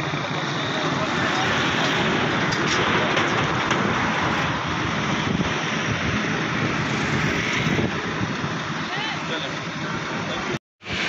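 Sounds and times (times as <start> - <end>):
roadside traffic rushing: 0.0 - 11.0.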